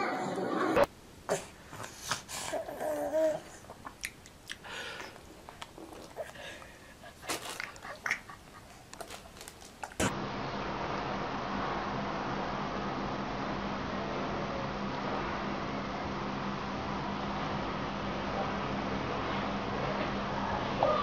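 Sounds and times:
baby vocal sound: 0.0s - 3.8s
baby mouth clicks and smacks: 3.8s - 4.6s.

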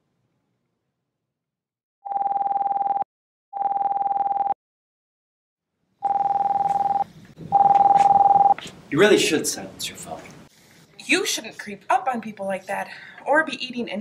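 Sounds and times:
mobile phone ringtone: 2.1s - 3.0s, 3.6s - 4.6s, 6.0s - 8.6s.

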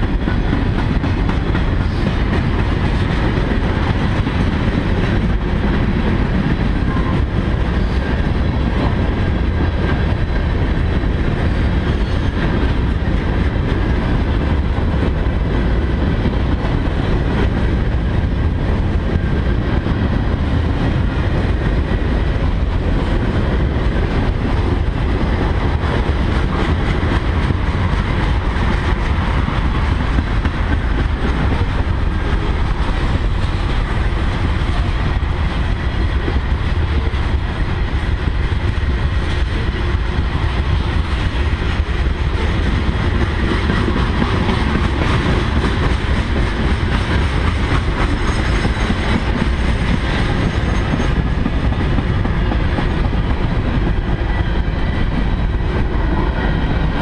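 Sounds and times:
train wheels rolling on rails: 0.0s - 57.0s.

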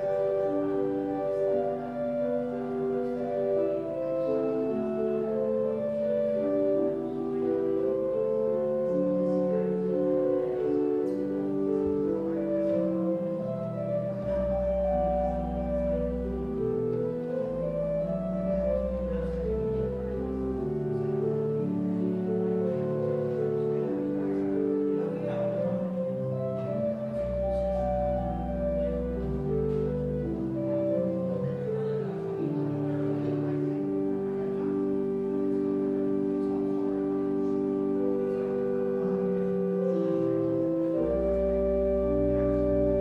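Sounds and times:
deep organ bass note: 0.0s - 43.0s
organ playing sustained chords: 0.0s - 43.0s.

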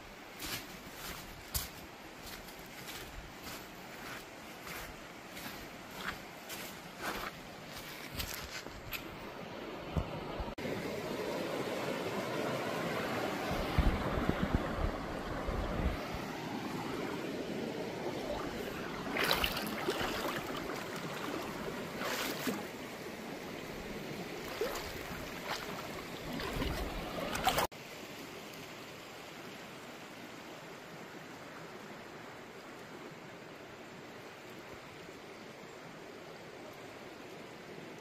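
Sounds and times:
river water rushing: 9.1s - 35.0s
wind buffeting microphone: 13.4s - 16.3s.

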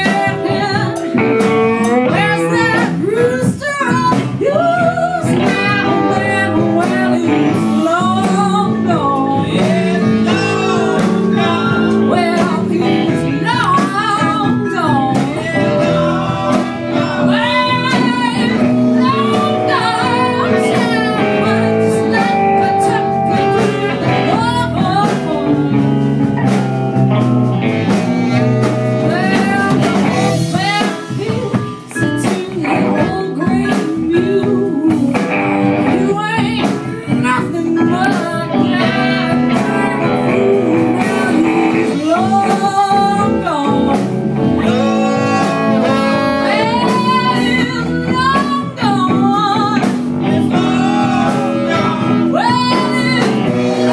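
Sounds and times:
lead guitar bending notes: 0.0s - 3.2s, 4.9s - 53.9s
blues band playing live: 0.0s - 53.9s.

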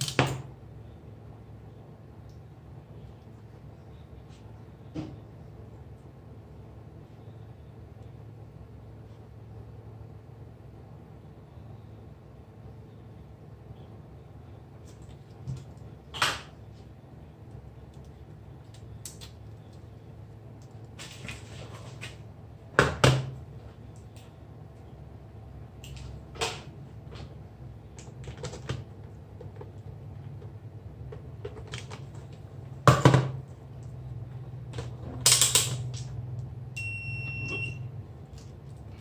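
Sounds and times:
steady low hum: 0.0s - 39.0s
short electronic beep: 36.8s - 37.9s.

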